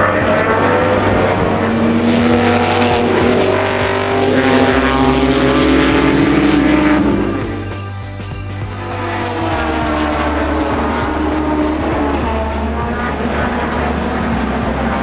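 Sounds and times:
background music: 0.0 - 15.0
racing car engine driving by: 0.0 - 15.0.

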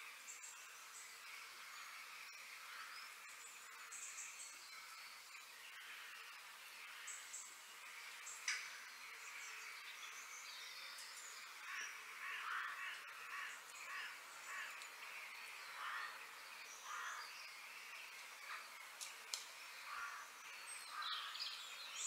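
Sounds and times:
birds chirping: 0.1 - 22.0
crows cawing: 11.6 - 14.8, 15.8 - 16.2, 16.8 - 17.2, 19.9 - 20.3.

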